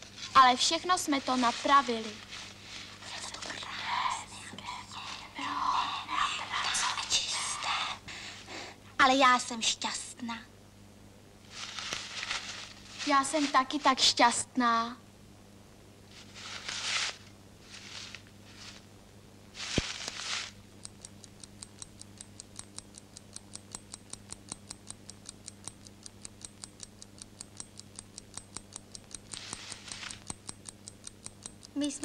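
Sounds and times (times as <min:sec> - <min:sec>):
newspaper rustling: 0:00.0 - 0:03.6, 0:11.4 - 0:14.0, 0:16.1 - 0:18.9, 0:19.6 - 0:20.6
steady fast ticking: 0:00.2 - 0:08.1, 0:19.6 - 0:32.0
sharp click: 0:20.8 - 0:31.8.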